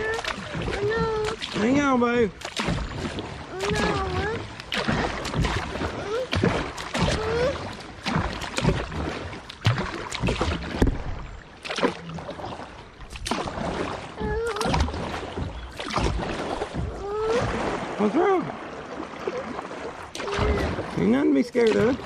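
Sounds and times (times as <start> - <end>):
small child whimpering: 0.0 - 1.4, 3.5 - 4.5, 5.9 - 6.4, 7.0 - 7.7, 14.2 - 14.9, 16.9 - 17.6
kayak paddles splashing: 0.0 - 22.0.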